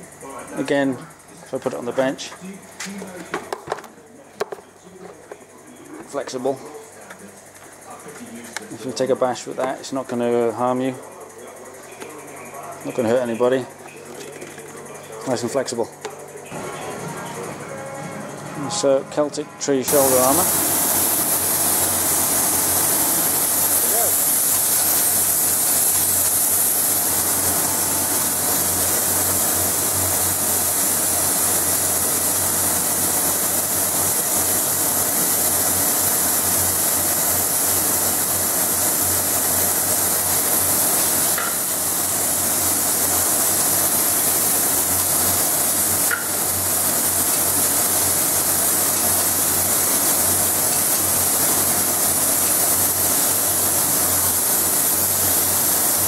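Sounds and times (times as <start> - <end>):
spray gun hissing: 19.9 - 56.0.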